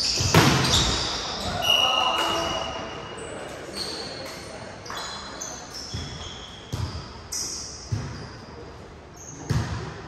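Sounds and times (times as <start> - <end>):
shoes squeaking on court floor: 0.0 - 9.8.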